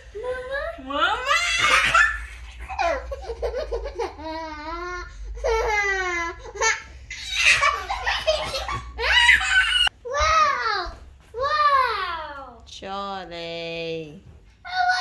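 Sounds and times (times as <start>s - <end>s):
young child laughing: 1.5s - 4.4s, 6.6s - 9.9s.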